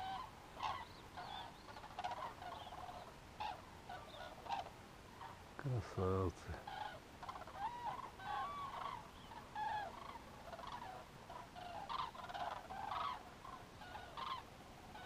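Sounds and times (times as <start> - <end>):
cranes calling: 0.0 - 5.4, 6.5 - 15.0.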